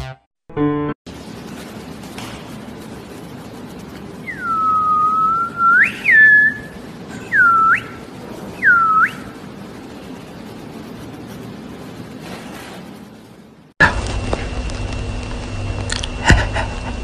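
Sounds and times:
person whistling: 0:04.2 - 0:08.0, 0:08.6 - 0:09.3.

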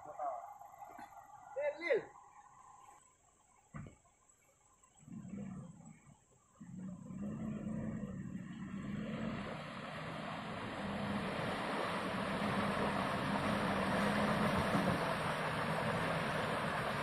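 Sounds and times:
pickup engine pulling: 0:04.7 - 0:17.0
tyres splashing through mud: 0:07.2 - 0:17.0.

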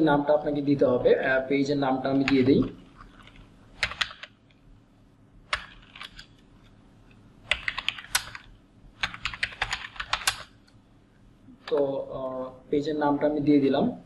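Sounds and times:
computer keyboard typing: 0:03.0 - 0:04.6, 0:05.5 - 0:06.4, 0:07.5 - 0:10.8.

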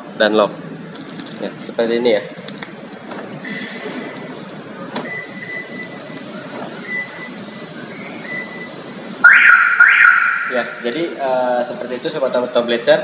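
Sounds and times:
car alarm siren chirp: 0:05.1 - 0:10.8.

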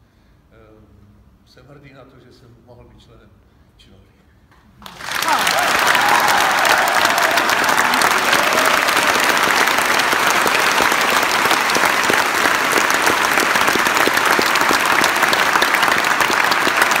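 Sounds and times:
audience applauding: 0:04.8 - 0:17.0.

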